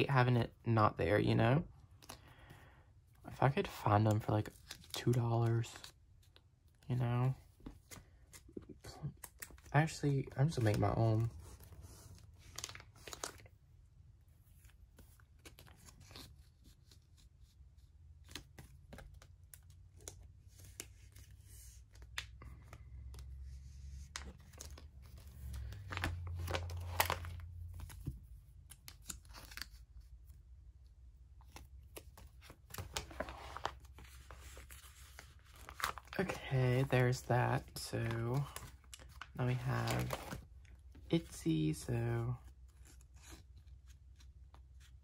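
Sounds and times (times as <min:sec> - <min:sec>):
binder page turning: 0:07.5 - 0:13.6, 0:14.5 - 0:30.3, 0:31.3 - 0:45.0
plastic sleeves crinkling and clicking: 0:07.6 - 0:13.6, 0:18.2 - 0:23.4, 0:24.0 - 0:30.3, 0:31.3 - 0:41.7.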